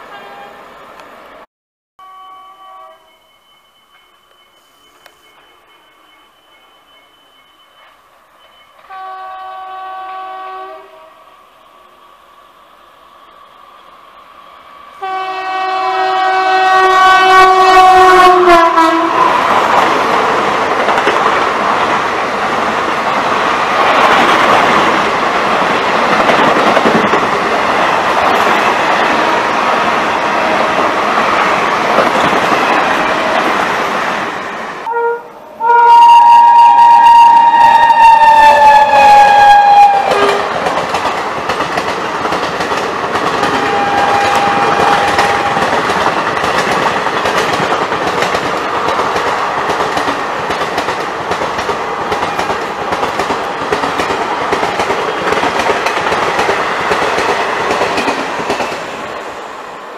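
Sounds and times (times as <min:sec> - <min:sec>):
locomotive horn: 0:00.1 - 0:00.6, 0:02.0 - 0:03.2, 0:08.9 - 0:11.3, 0:15.0 - 0:19.4, 0:34.8 - 0:40.6, 0:43.4 - 0:45.7
train wheels rumbling and clattering: 0:17.8 - 0:34.8, 0:40.0 - 0:59.5.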